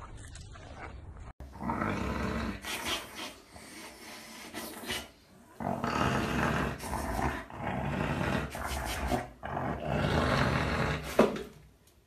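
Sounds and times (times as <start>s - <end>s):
dog grumbling and growling: 1.4s - 2.7s, 5.5s - 11.4s.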